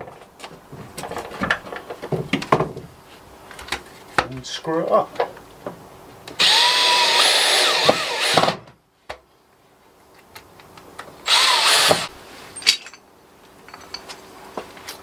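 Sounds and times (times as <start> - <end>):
cordless drill driving screws: 6.4 - 8.6, 11.2 - 12.1.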